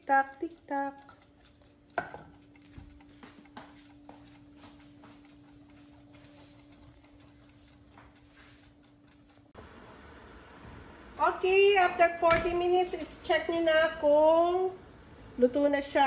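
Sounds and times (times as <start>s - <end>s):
kitchen timer ticking faintly: 0.0s - 9.6s, 11.2s - 16.0s
steady low hum: 0.0s - 16.0s
timer set down with a knock: 0.8s - 8.7s.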